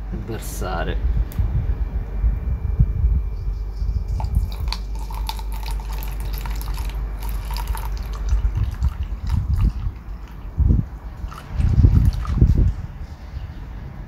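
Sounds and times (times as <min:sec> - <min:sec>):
low rumble: 0:00.0 - 0:14.0
water pouring and splashing: 0:04.2 - 0:10.5, 0:11.2 - 0:12.7.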